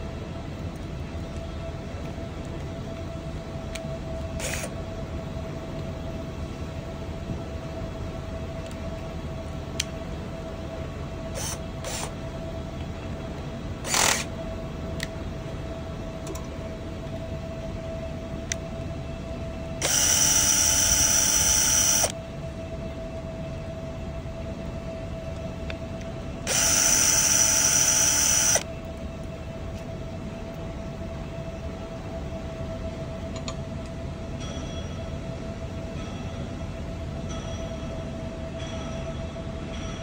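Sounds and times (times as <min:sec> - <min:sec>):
cordless drill driving screws: 0:13.9 - 0:14.3, 0:19.8 - 0:22.1, 0:26.5 - 0:28.6.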